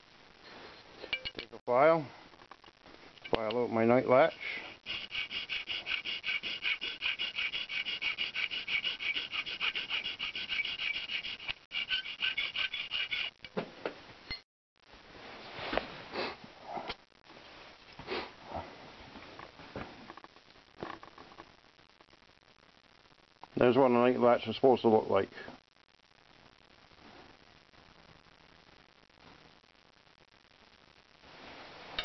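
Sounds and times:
hand file rasping on metal: 4.2s - 13.4s.

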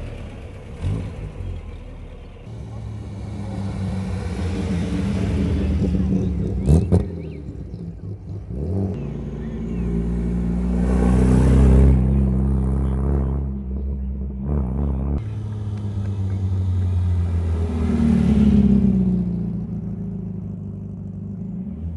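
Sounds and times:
cars driving past: 0.0s - 21.9s.

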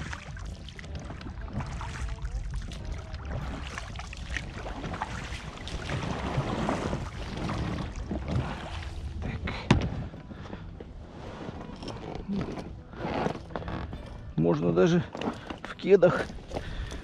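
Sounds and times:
small knocks and splashes: 0.0s - 10.1s
oars rowing through water: 0.0s - 17.0s.

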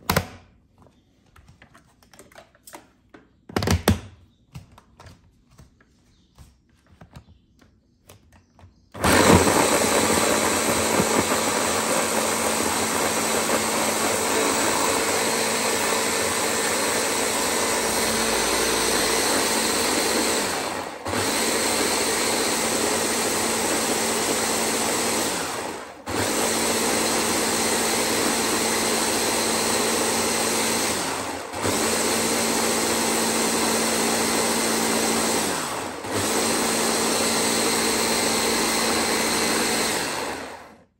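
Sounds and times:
electric blender running: 9.0s - 40.9s.

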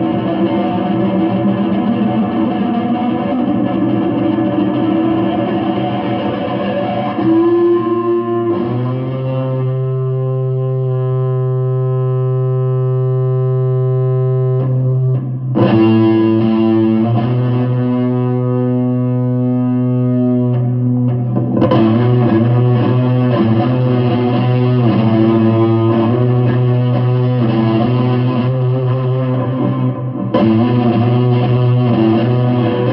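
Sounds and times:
electric guitar through amplifier: 0.0s - 32.9s.

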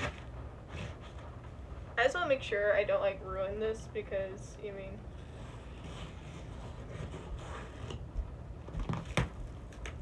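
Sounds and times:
cardboard scraping and rustling: 0.0s - 1.4s, 5.3s - 10.0s
cardboard and tape crackling: 0.0s - 1.6s, 5.1s - 10.0s.

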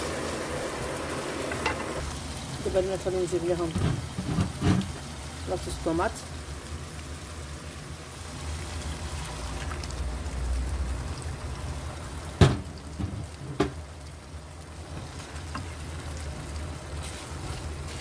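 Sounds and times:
meat frying in a pan: 0.0s - 18.0s.

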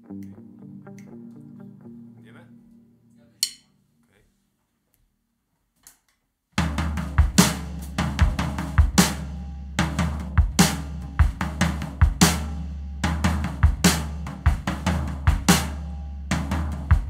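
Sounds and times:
drum kit beat: 6.6s - 17.0s.

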